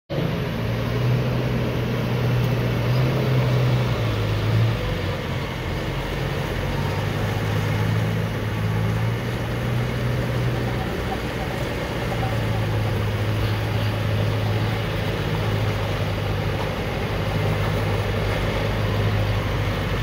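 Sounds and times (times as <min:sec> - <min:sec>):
diesel engine running: 0:00.1 - 0:20.0.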